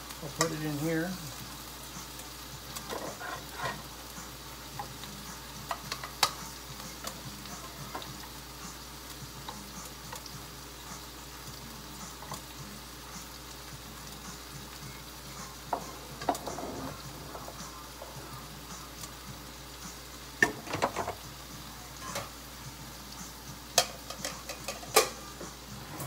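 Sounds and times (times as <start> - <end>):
food sizzling in a frying pan: 0.0 - 26.0
metal spatula clicking on pan: 5.7 - 6.4, 23.8 - 25.2.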